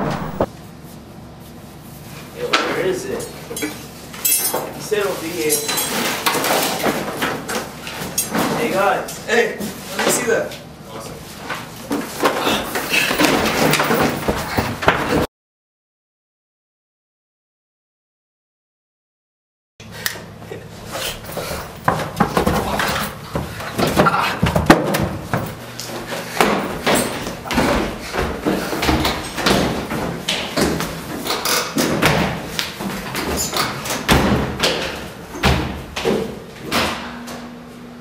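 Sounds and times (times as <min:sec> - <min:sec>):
hurried footsteps on stairs: 0:21.2 - 0:36.4.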